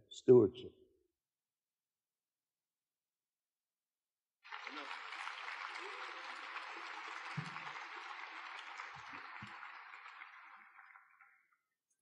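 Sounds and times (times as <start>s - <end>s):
audience applauding: 4.4s - 11.5s.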